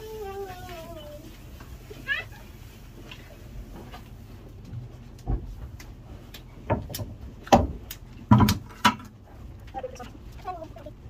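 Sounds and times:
knocks on wooden stall boards: 0:06.7 - 0:09.1.

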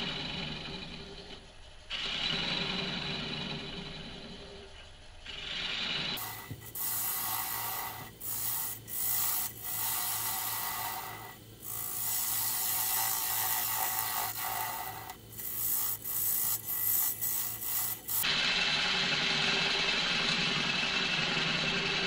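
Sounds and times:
lathe low hum: 0:00.0 - 0:22.0
turning tool scraping wood: 0:05.3 - 0:18.3.

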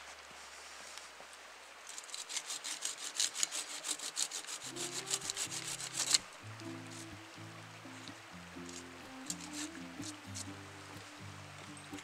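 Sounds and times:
hand saw cutting wood: 0:01.9 - 0:07.1, 0:08.6 - 0:10.6
background music: 0:04.7 - 0:12.0.

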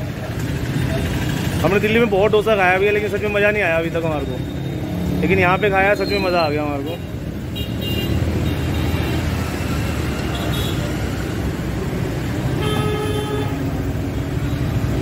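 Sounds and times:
busy road traffic: 0:00.0 - 0:15.0
vehicle horn: 0:12.6 - 0:13.6.

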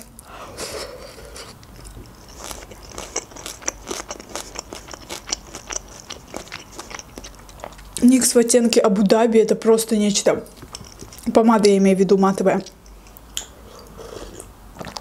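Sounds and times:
chewing crisp salad: 0:00.1 - 0:08.3, 0:10.4 - 0:11.6, 0:12.6 - 0:15.0.

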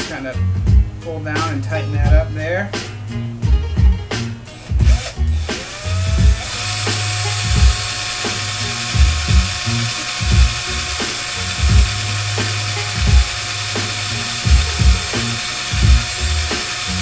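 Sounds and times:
cordless drill motor whining: 0:04.6 - 0:17.0.

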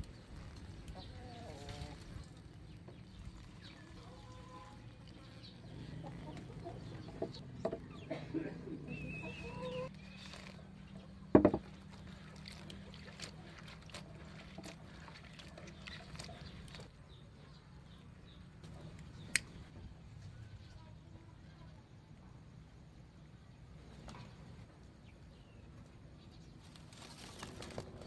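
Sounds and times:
chickens clucking: 0:05.6 - 0:09.9.

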